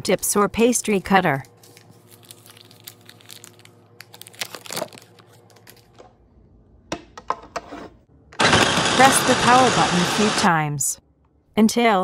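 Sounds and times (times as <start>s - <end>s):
paper wrapper crinkling: 1.6s - 6.0s.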